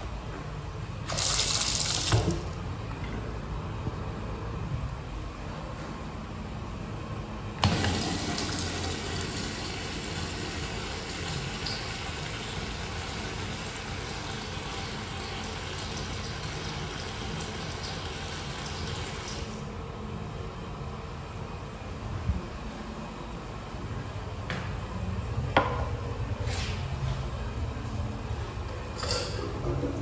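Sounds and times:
toilet flushing water rush: 1.1 - 2.6, 7.6 - 19.7.

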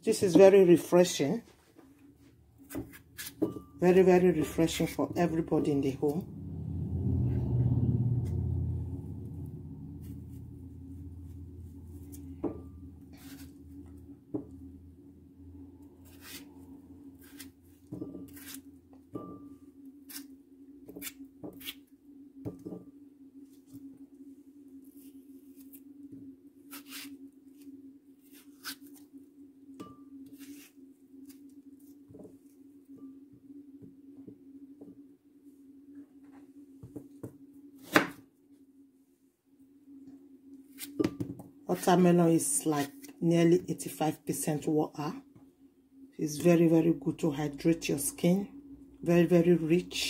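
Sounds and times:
low hum: 1.8 - 20.9
knife cutting melon: 2.6 - 3.6, 13.2 - 13.7, 16.0 - 16.5, 17.1 - 18.7, 19.3 - 21.9, 26.6 - 29.1, 29.9 - 32.0, 37.8 - 38.2, 40.6 - 41.2.

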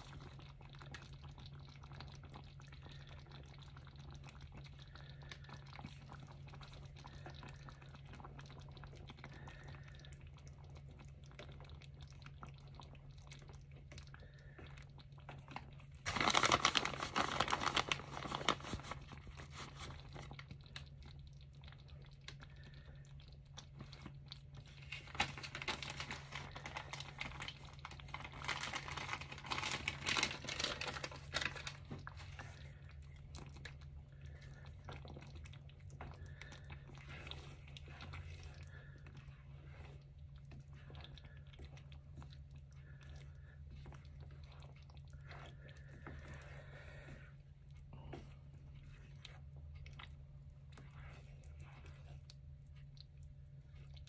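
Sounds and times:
low steady hum: 0.0 - 54.0
plastic bag crinkling: 15.5 - 20.4, 24.6 - 32.6.

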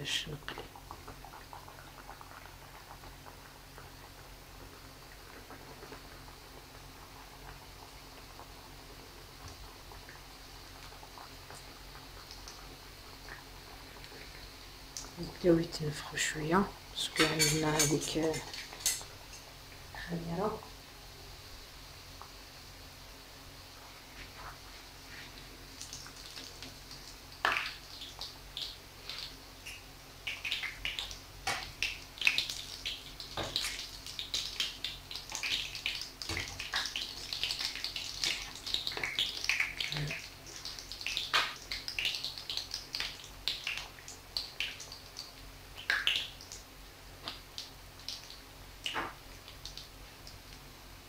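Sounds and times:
dough sizzling in hot oil: 0.0 - 51.0
metal spoon knocking pan: 17.1 - 19.0.

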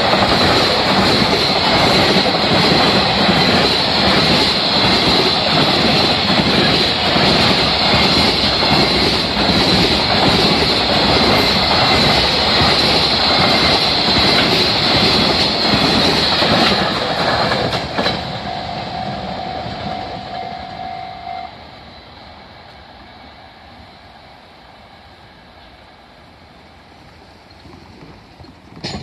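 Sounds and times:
freight train rumbling past: 0.0 - 29.0
steady tone: 18.2 - 22.6.

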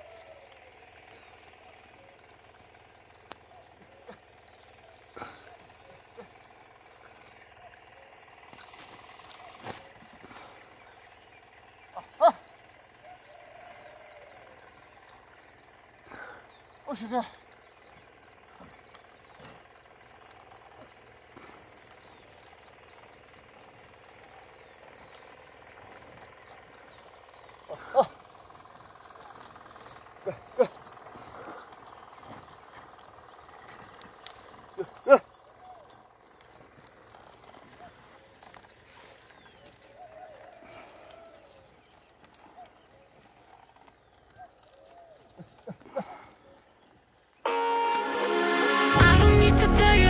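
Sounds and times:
short sharp sounds: 47.5 - 50.0.

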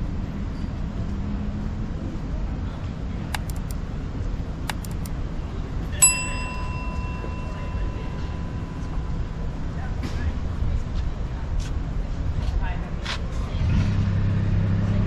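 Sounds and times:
city street rumble: 0.0 - 15.0
metallic bell-like ding: 6.0 - 9.7.

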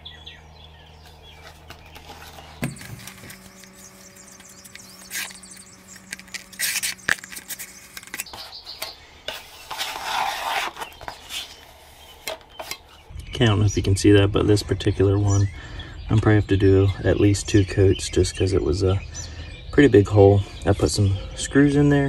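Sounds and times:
low steady hum: 0.0 - 22.0
putty knife scraping a can: 5.0 - 12.8.

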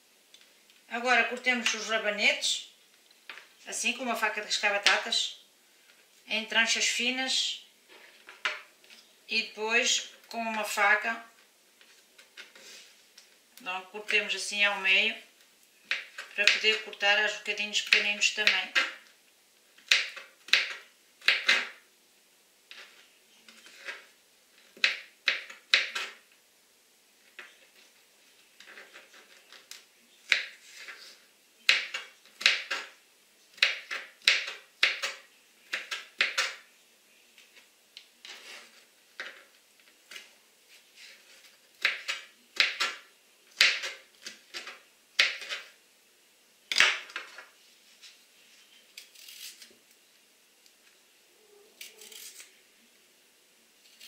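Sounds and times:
knife chopping on plastic board: 19.9 - 21.7, 31.7 - 32.9, 33.6 - 36.6.

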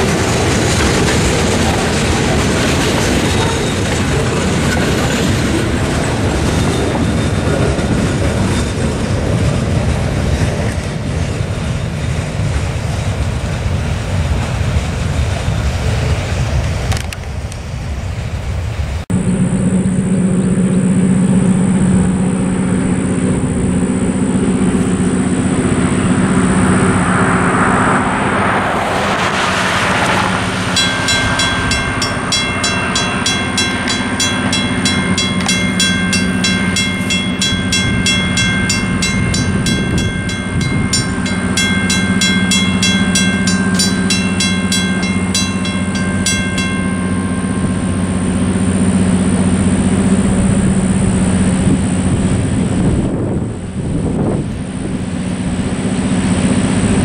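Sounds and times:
railroad crossing bell ringing: 0.0 - 12.5, 22.3 - 52.4
train engine drone: 0.0 - 57.0.

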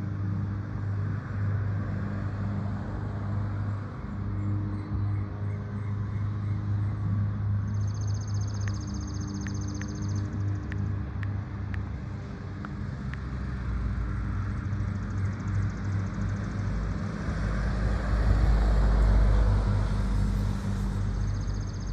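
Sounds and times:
passing vehicle rumble: 11.5 - 21.9.

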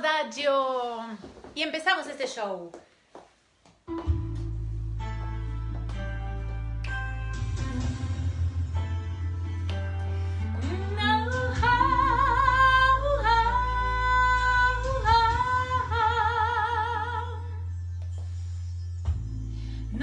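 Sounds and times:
instrumental backing track: 3.7 - 20.0
woman singing with vibrato: 10.6 - 17.7.

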